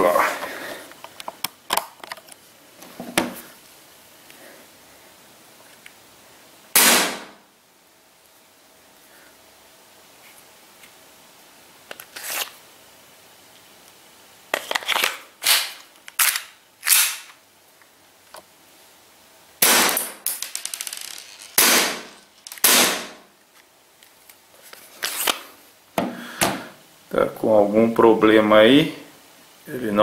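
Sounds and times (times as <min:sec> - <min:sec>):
airsoft pistol shots: 0:06.8 - 0:07.4, 0:19.6 - 0:20.3, 0:21.6 - 0:23.2.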